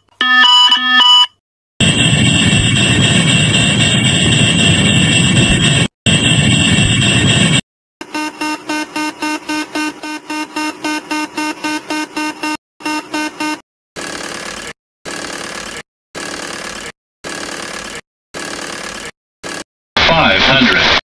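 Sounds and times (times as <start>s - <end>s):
repeating beeping tone: 8.0s - 13.6s
stall warning buzz: 8.0s - 13.6s.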